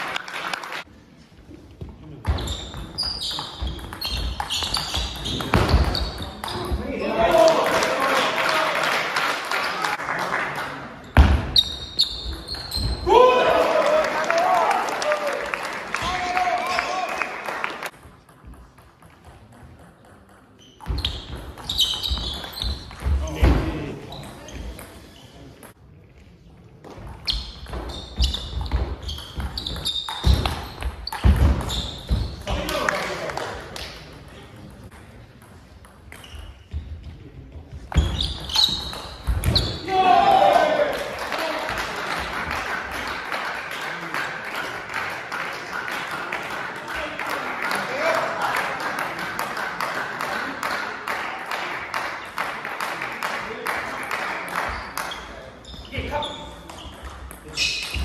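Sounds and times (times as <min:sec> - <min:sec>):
spectators applauding: 0:00.0 - 0:00.9, 0:07.3 - 0:11.0, 0:13.1 - 0:17.9, 0:40.5 - 0:55.0
shoes squeaking on floor: 0:02.3 - 0:07.2, 0:11.1 - 0:13.1, 0:20.5 - 0:25.5, 0:27.0 - 0:32.5, 0:36.1 - 0:39.9, 0:54.7 - 0:58.0.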